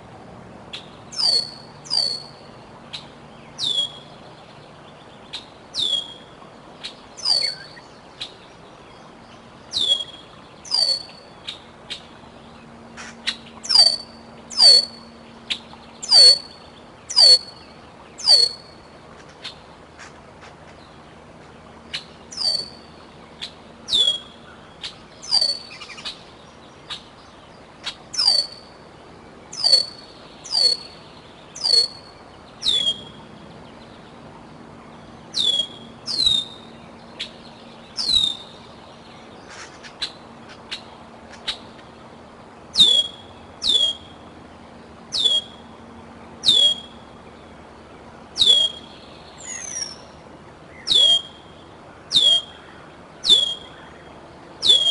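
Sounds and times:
eagle whistling call: 1.1s - 2.4s, 3.6s - 4.1s, 5.8s - 6.3s, 7.2s - 7.8s, 9.7s - 11.3s, 13.6s - 15.1s, 16.0s - 17.6s, 18.2s - 18.7s, 22.3s - 22.9s, 23.9s - 24.5s, 25.2s - 26.1s, 28.2s - 28.7s, 29.5s - 31.0s, 31.6s - 33.2s, 35.3s - 36.7s, 38.0s - 38.6s, 42.8s - 44.2s, 45.1s - 45.6s, 46.4s - 47.0s, 48.4s - 50.1s, 50.8s - 51.5s, 52.1s - 54.0s, 54.6s - 54.9s.

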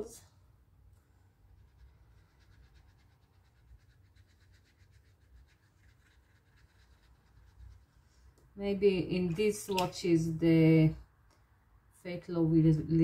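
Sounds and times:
paintbrush scratching strokes: 1.2s - 8.4s.

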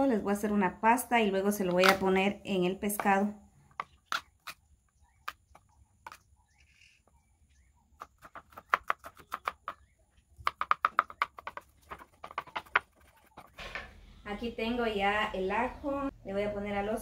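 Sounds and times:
knife chopping on wooden board: 8.0s - 13.6s.

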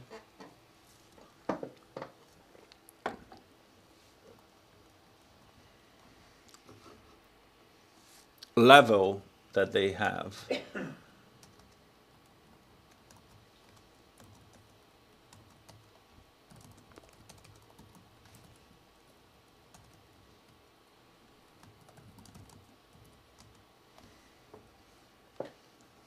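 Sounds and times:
typing on computer keyboard: 11.4s - 11.8s, 12.9s - 18.6s, 19.7s - 20.1s, 21.5s - 24.1s.

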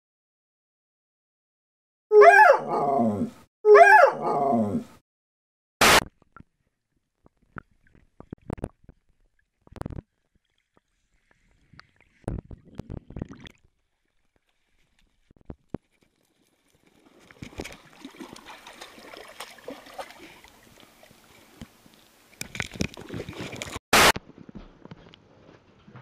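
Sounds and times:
dog drawn-out vocal calls: 2.1s - 5.0s
faint splashes in shallow water: 6.4s - 23.8s.

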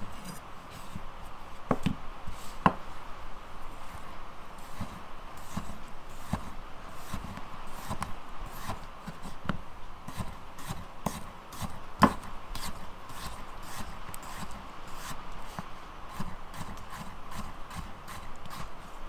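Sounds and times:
knife chopping on wooden board: 9.5s - 15.1s.

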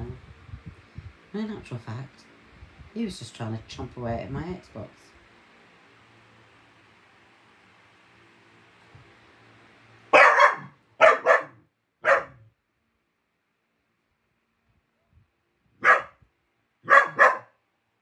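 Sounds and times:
dog barking: 10.1s - 12.5s, 15.8s - 16.2s, 16.8s - 17.6s.

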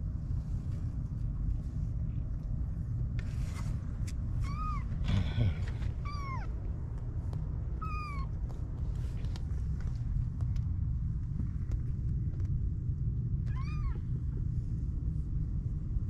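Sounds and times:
steady low rumble: 0.0s - 16.0s
kittens mewing: 4.4s - 6.6s, 7.8s - 8.4s, 13.5s - 14.0s.

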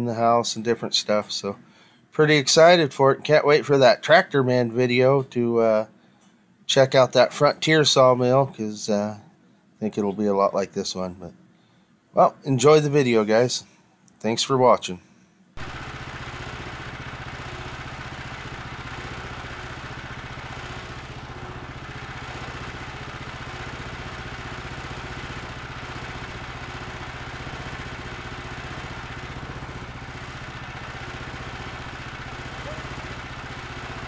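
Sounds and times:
sawmill engine idling: 15.6s - 34.0s.

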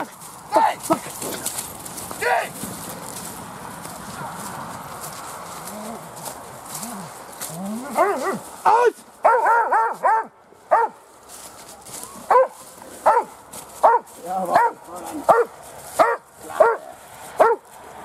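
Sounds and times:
dog barking sharply: 9.2s - 11.0s, 12.3s - 16.8s, 17.4s - 17.6s.

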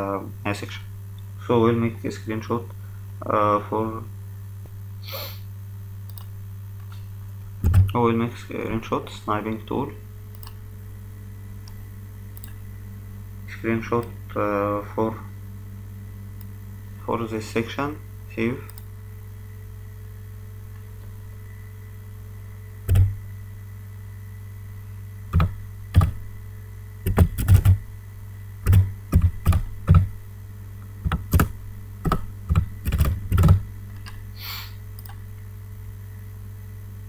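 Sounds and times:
steady low hum: 0.0s - 37.0s
computer keyboard typing: 7.6s - 7.9s, 22.9s - 23.1s, 25.4s - 26.2s, 27.1s - 27.8s, 28.7s - 30.1s, 31.0s - 33.6s.

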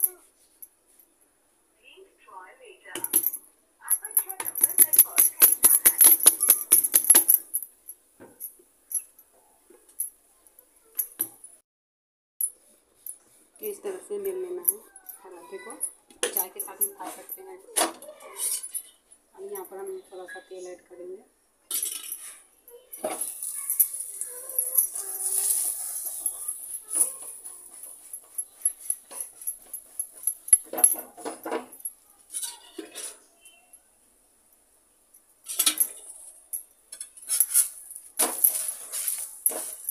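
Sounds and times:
bangles jingling: 3.0s - 10.2s, 12.4s - 20.2s, 21.7s - 33.9s, 35.1s - 39.9s.

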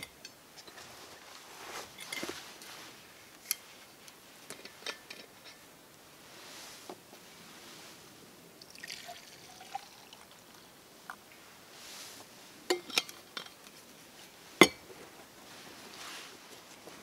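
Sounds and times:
drink pouring into cup: 8.6s - 10.5s.

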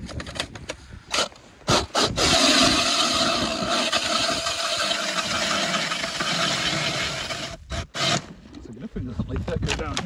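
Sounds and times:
auger grinding through ice: 1.1s - 8.3s
drill motor whine: 1.9s - 8.3s.

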